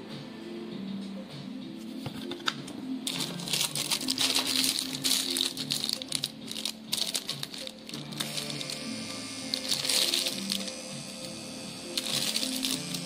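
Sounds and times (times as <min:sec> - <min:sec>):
plastic wrapping crinkling: 0:03.1 - 0:08.8, 0:09.5 - 0:10.9, 0:12.0 - 0:13.0.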